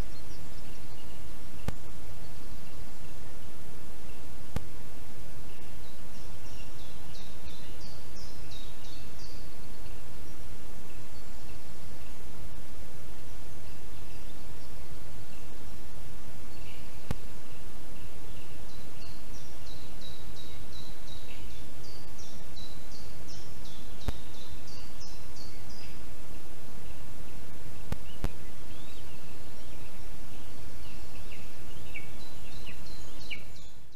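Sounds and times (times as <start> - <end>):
forest background noise: 0.0 - 33.9
songbird singing: 0.0 - 33.9
faint clicks: 1.6 - 1.9.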